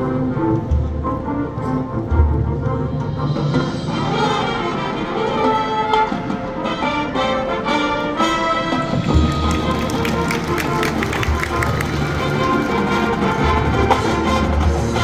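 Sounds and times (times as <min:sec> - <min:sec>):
brass sustained chords: 0:00.0 - 0:15.0
marching band playing: 0:00.0 - 0:15.0.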